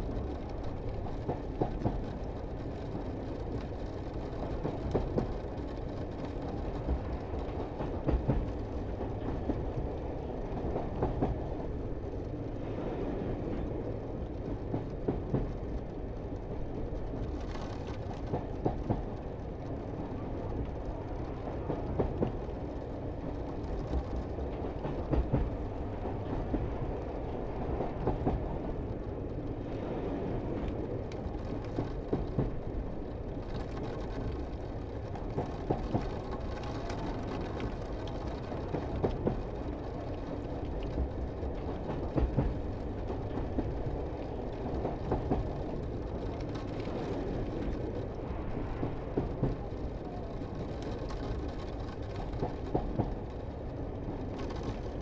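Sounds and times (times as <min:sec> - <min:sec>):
train clacks and knocks: 0:00.0 - 0:55.0
train rumbling: 0:00.0 - 0:55.0.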